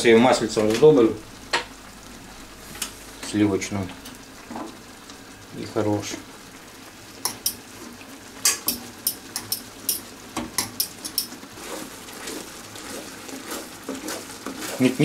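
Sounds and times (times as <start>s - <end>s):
soft stirring in a skillet: 0.0s - 15.0s
metal utensil scraping a pot: 10.8s - 15.0s.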